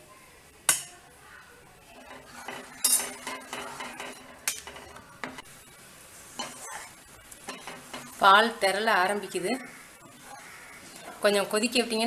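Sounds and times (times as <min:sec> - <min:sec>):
ladle knocking against a pan: 0:02.1 - 0:05.4.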